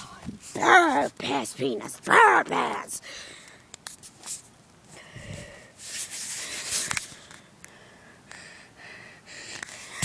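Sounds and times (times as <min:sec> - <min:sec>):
phone handling rubbing and rustling: 0:03.8 - 0:04.6, 0:05.8 - 0:07.4.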